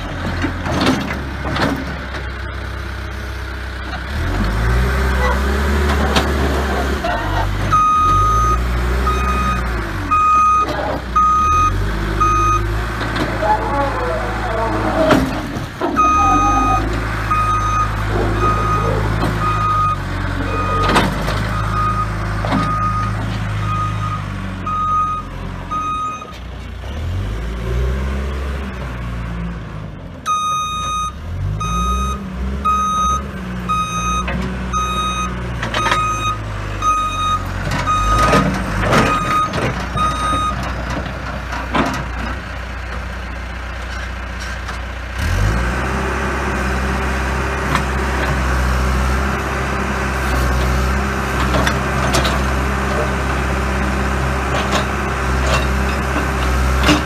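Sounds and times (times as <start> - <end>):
diesel engine revving: 0.0 - 57.0
reversing alarm beeping: 7.7 - 12.7, 15.9 - 20.9, 21.5 - 26.4, 30.3 - 38.3, 39.0 - 40.6.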